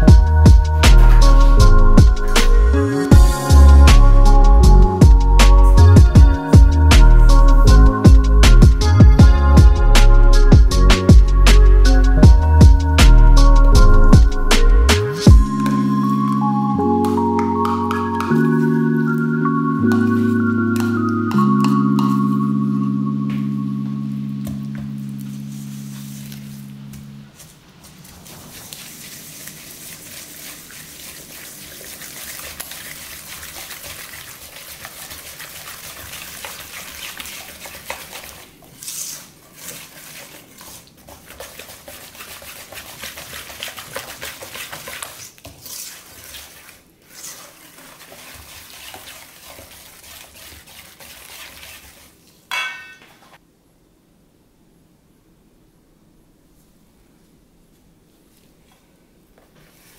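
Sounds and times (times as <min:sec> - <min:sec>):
whisk scraping a metal bowl: 0:28.2 - 0:52.2.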